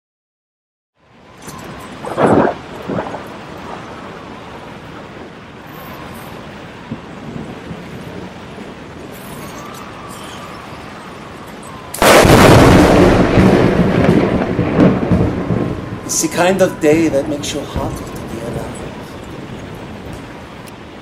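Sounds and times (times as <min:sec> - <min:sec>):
rain hissing: 0:01.0 - 0:21.0
thunderclap rumbling: 0:01.3 - 0:21.0.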